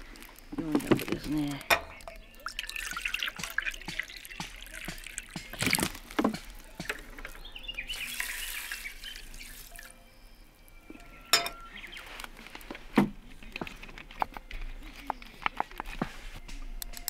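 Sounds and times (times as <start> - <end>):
water trickling into metal tin: 0.3 - 10.0
metal cookware knocking: 11.3 - 11.7.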